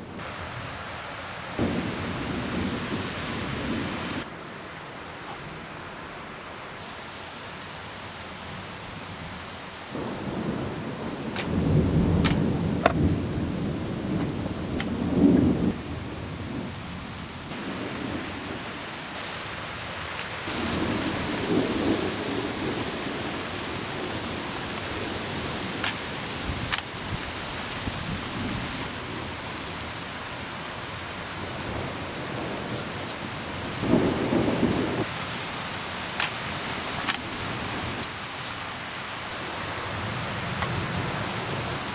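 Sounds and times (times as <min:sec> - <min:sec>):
steady rain: 0:00.0 - 0:41.9
thunder rumbling: 0:01.6 - 0:04.3, 0:09.9 - 0:29.9, 0:31.3 - 0:35.4.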